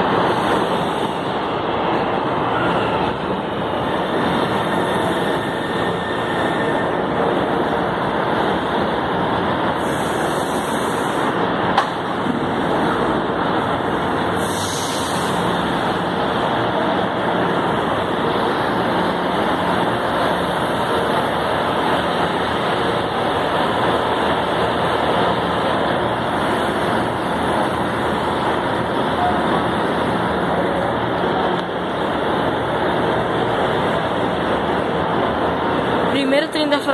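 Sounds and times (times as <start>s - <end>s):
metro train equipment running: 0.0s - 36.9s
brief high hisses: 14.4s - 15.4s.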